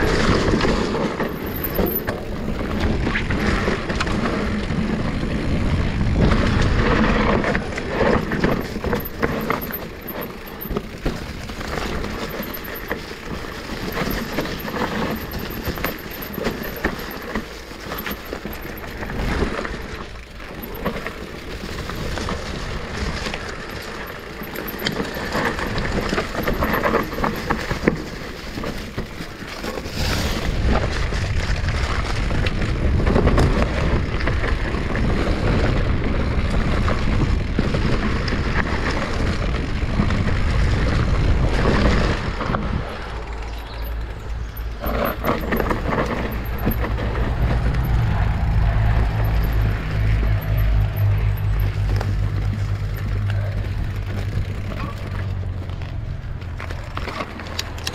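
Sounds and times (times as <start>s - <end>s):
bike clattering over bumps: 0.0s - 57.9s
tyres rolling over dirt: 0.0s - 57.9s
deep rumble: 39.1s - 57.8s.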